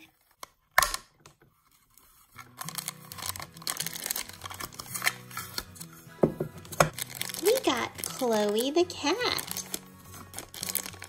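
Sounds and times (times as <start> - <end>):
plastic packaging crinkling and tearing: 1.6 - 6.0, 6.6 - 11.0
background music: 2.4 - 11.0.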